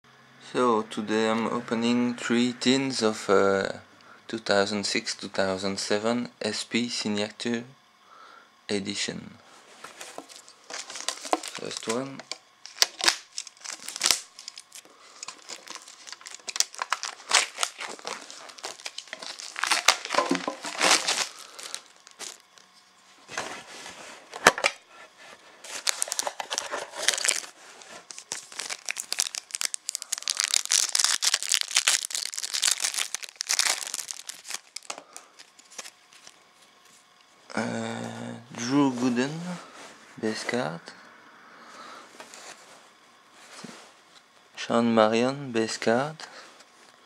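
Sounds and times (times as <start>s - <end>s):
plastic wrap crinkling and tearing: 10.1s - 22.7s, 25.7s - 36.4s.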